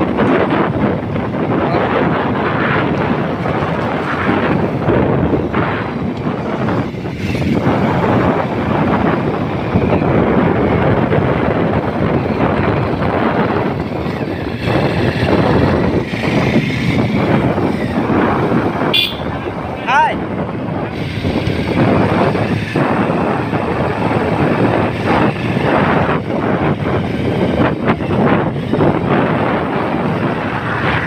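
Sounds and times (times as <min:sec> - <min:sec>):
vehicle driving on dirt road: 0:00.0 - 0:31.0
wind buffeting microphone: 0:00.0 - 0:31.0.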